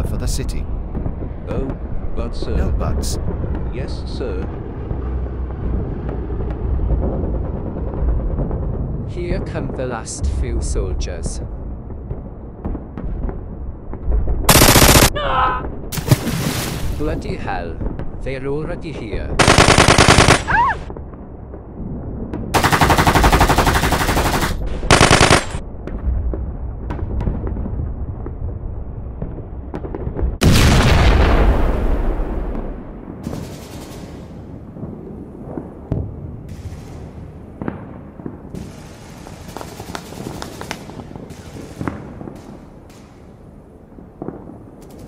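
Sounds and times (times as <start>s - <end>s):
low rumble: 0.0s - 16.0s, 16.9s - 38.5s
automatic gunfire: 14.5s - 15.1s, 19.4s - 20.6s, 22.6s - 25.6s
distant gunshots: 19.4s - 20.6s, 22.6s - 25.6s
heavy boom: 25.8s - 33.3s.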